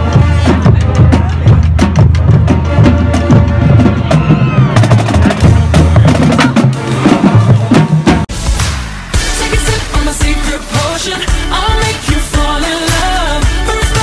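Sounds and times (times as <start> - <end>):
low brass notes: 0.0 - 1.4
snare and bass drums: 0.0 - 14.0.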